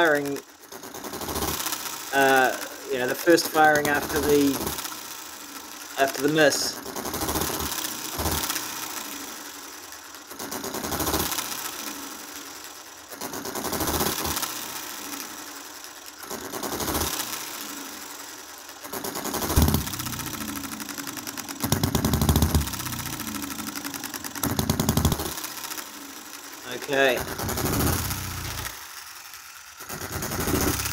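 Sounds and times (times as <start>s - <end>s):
fast ticking of valve gear: 0.0s - 15.6s, 16.2s - 17.6s, 18.7s - 30.9s
engine firing power strokes: 18.9s - 29.0s, 29.9s - 30.9s.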